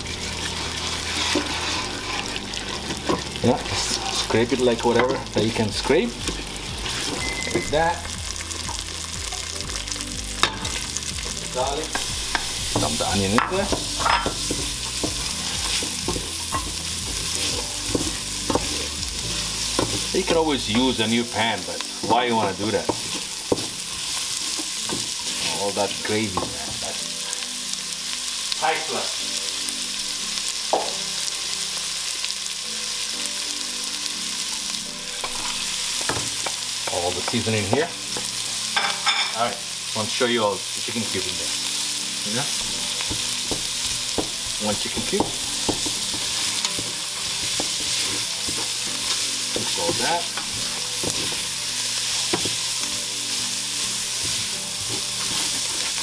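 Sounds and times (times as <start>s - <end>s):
onion and garlic sizzling in a pan: 0.0s - 56.0s
utensil knocking and scraping pan: 1.1s - 2.4s, 43.0s - 51.4s
utensil clinking on pan: 13.4s - 14.6s.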